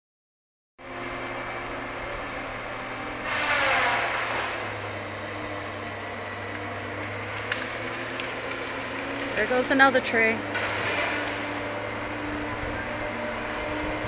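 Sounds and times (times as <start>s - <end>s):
machine engine drone: 0.8s - 14.0s.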